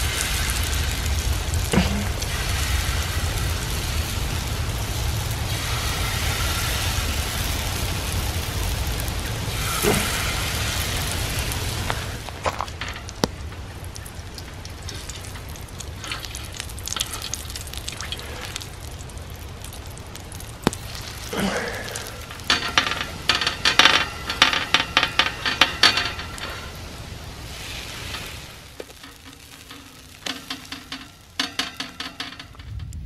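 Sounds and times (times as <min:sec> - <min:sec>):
batter sizzling in oil: 0:00.0 - 0:32.2
metal utensil scraping griddle: 0:09.3 - 0:13.2, 0:21.1 - 0:32.7.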